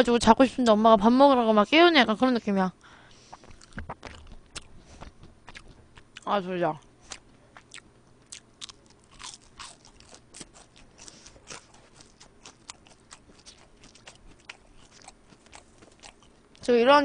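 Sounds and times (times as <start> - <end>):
crunchy chewing: 3.1 - 6.3, 7.0 - 16.7.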